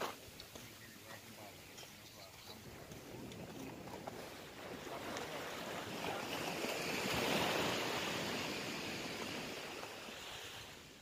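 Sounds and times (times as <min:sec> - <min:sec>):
wave breaking on beach: 0:02.7 - 0:11.0.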